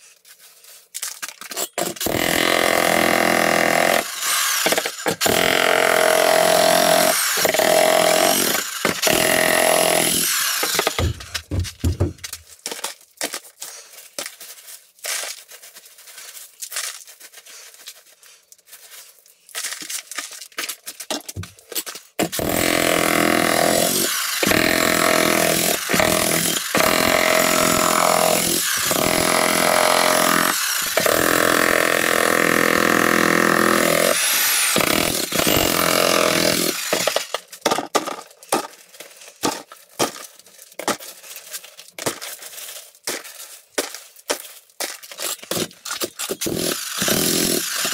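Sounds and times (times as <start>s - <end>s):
jackhammer chiselling concrete: 1.8s - 12.0s, 22.2s - 37.4s, 45.5s - 47.9s
concrete chunks clinking in bucket: 10.5s - 22.2s.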